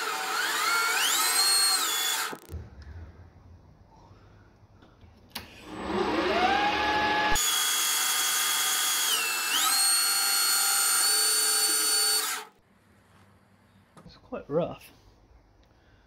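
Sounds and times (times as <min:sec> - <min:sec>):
lathe motor whine: 0:05.6 - 0:07.4, 0:08.0 - 0:12.5.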